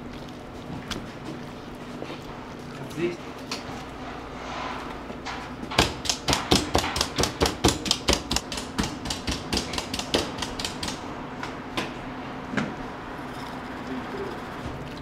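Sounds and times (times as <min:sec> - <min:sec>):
tool knocking meat on cutting board: 0:05.8 - 0:11.0.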